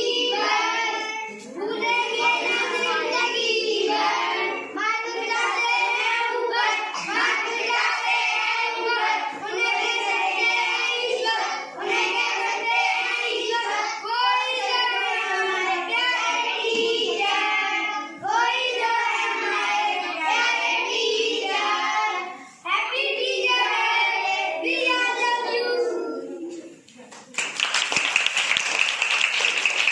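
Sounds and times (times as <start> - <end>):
children singing: 0.0 - 26.8
clapping: 27.0 - 29.9.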